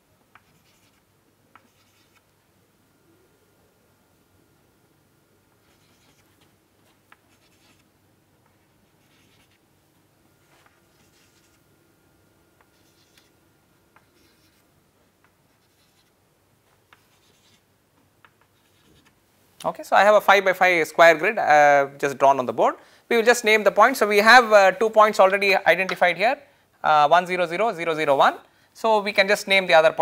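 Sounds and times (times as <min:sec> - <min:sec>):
chalk tapping and scratching: 0:00.3 - 0:01.0, 0:01.6 - 0:02.2, 0:05.6 - 0:07.8, 0:09.0 - 0:09.6, 0:10.5 - 0:11.6, 0:12.6 - 0:13.3, 0:14.0 - 0:14.6, 0:15.5 - 0:16.1, 0:16.7 - 0:17.6, 0:18.2 - 0:19.1.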